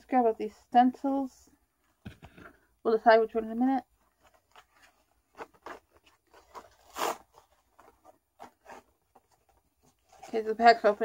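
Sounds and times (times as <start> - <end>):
cardboard packaging rustling: 4.0 - 10.7.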